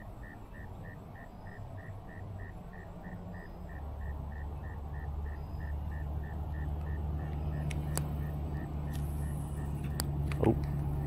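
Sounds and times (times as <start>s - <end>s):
low engine hum: 0.0s - 11.0s
sharp clicks: 6.8s - 8.3s.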